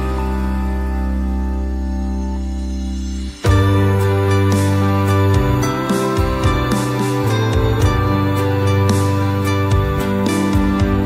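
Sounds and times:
background music with bass line: 0.0 - 11.0.

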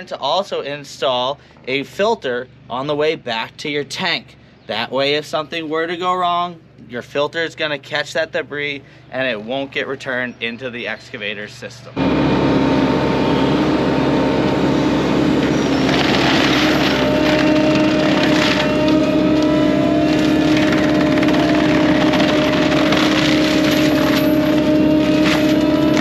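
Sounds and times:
mulcher machine running: 11.9 - 26.0
grinding into wood: 12.0 - 26.0.

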